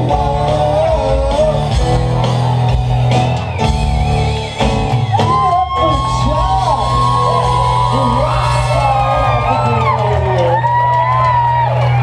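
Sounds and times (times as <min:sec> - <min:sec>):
man singing into a microphone: 0:00.0 - 0:02.1, 0:05.6 - 0:10.3
live rock music: 0:00.0 - 0:12.0.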